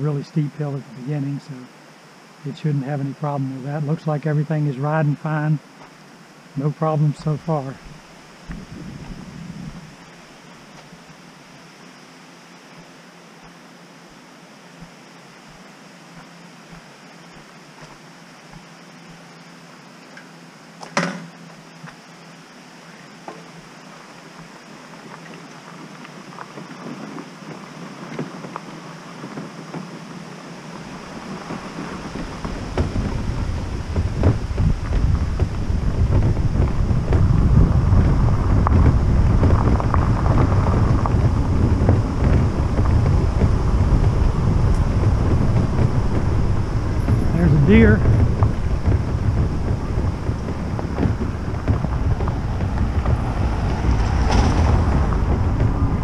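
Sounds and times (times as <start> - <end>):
road rumble: 0.0 - 56.0
wind buffeting microphone: 7.2 - 10.2, 26.2 - 56.0
small rattles: 30.9 - 56.0.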